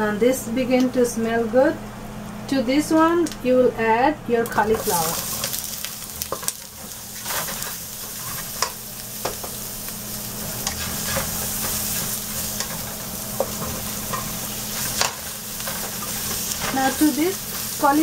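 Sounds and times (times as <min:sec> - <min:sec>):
vegetables sizzling in hot oil: 0:04.6 - 0:18.0
spatula scraping and clicking: 0:07.2 - 0:09.5, 0:10.6 - 0:16.8.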